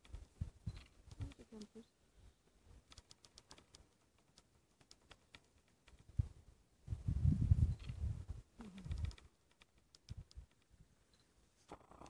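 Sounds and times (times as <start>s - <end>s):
faint clicks: 0.0s - 1.8s, 2.8s - 6.1s, 8.6s - 12.0s.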